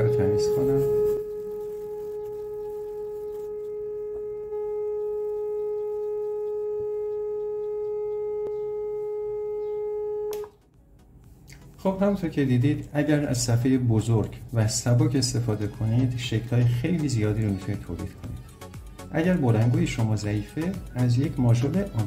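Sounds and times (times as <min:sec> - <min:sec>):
steady single-frequency tone: 0:00.0 - 0:10.5.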